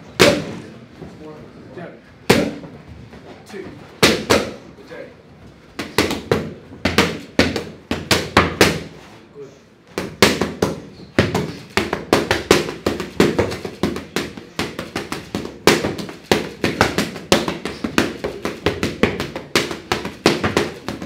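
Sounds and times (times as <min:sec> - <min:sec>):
boxing gloves hitting pads: 0:00.1 - 0:00.6, 0:02.3 - 0:02.7, 0:04.0 - 0:04.6, 0:05.7 - 0:09.0, 0:09.8 - 0:21.0.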